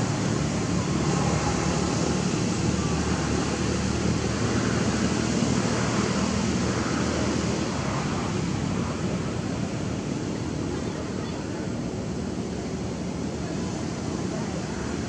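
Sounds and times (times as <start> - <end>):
steady rushing noise: 0.0 - 10.8.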